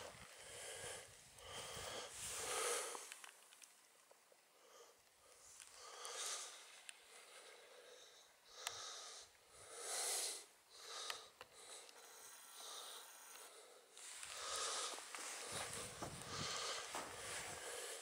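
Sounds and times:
heavy wheezy breathing: 0.0 - 3.2, 4.6 - 18.0
small clicks: 3.1 - 4.2.

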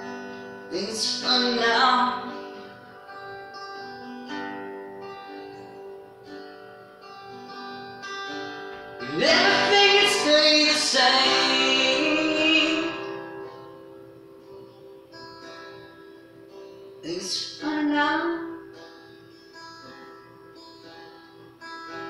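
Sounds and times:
acoustic guitar played slowly: 0.0 - 22.0
man singing: 0.7 - 2.3, 9.0 - 13.2.

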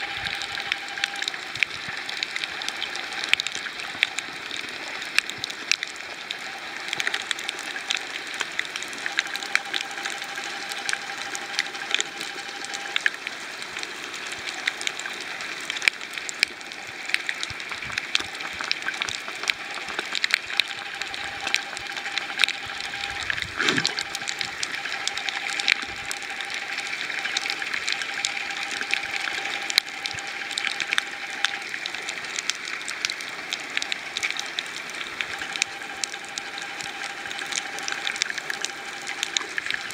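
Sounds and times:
faint steady hum: 0.0 - 39.9
underwater hiss: 23.3 - 24.2.

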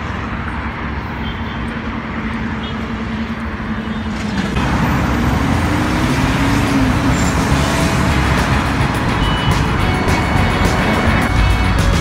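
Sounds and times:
heavy highway traffic: 0.0 - 12.0
music: 7.5 - 12.0.

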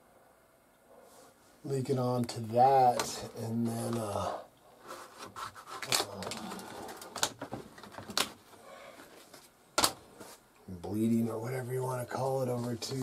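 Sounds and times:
fabric rubbing on microphone: 4.8 - 5.9
handling noises: 4.8 - 10.5.

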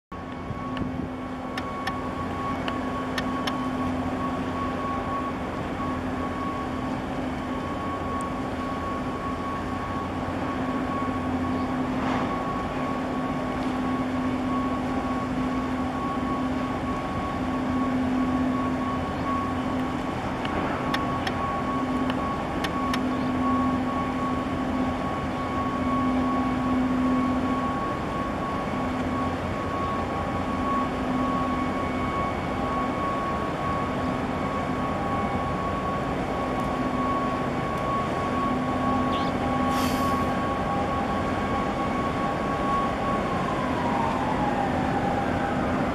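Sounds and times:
ship engines droning: 0.1 - 45.9
faint high steady tone: 0.2 - 20.3, 20.9 - 43.5.

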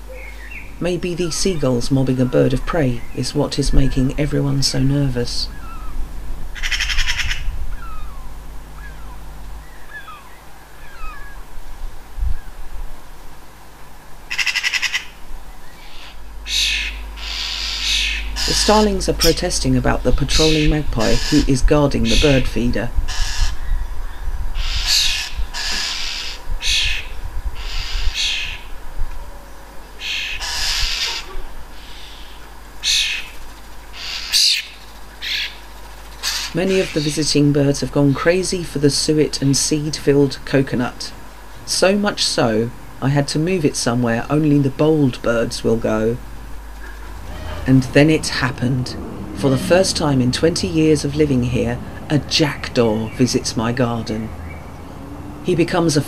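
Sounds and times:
gulls calling: 0.0 - 12.7, 13.8 - 56.0
harsh rapid rattling call: 31.9 - 37.4.

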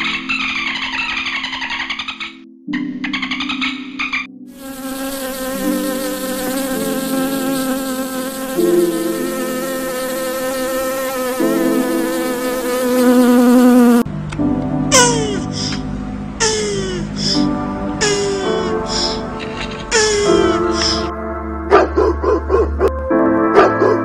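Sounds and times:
wasps buzzing: 4.6 - 14.1, 16.4 - 21.1.

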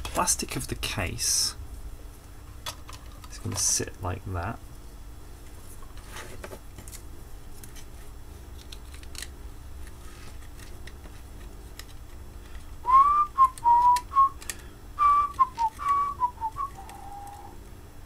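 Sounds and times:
man whistling a tune: 12.8 - 14.4, 15.0 - 17.5.

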